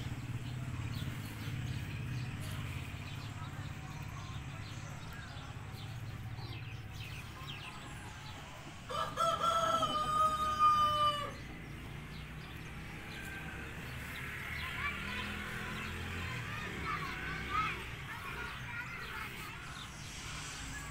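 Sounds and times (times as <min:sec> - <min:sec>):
rooster crowing: 0:08.9 - 0:11.4.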